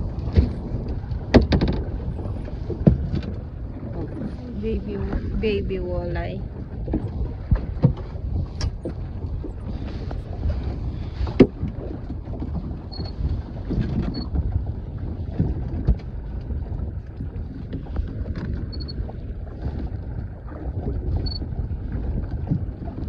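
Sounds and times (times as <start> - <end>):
wind buffeting microphone: 0.0 - 23.0.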